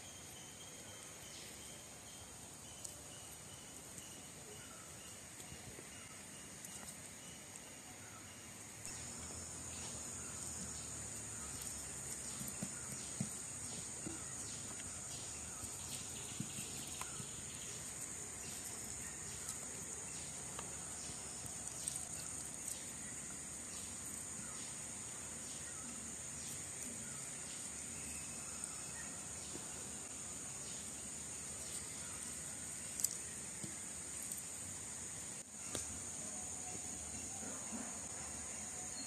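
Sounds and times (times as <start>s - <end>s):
insect chorus: 0.0s - 39.0s.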